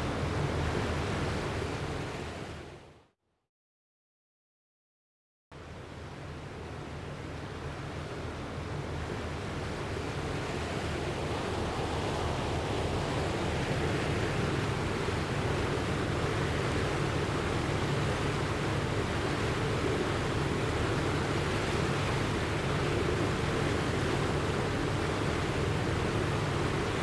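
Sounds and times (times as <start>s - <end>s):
rushing flood water: 5.6s - 27.0s.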